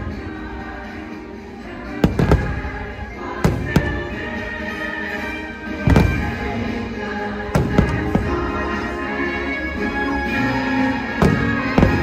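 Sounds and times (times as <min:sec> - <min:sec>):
show music: 0:00.0 - 0:12.0
fireworks bursting with sharp bangs: 0:01.9 - 0:05.0, 0:05.6 - 0:09.2, 0:10.6 - 0:12.0.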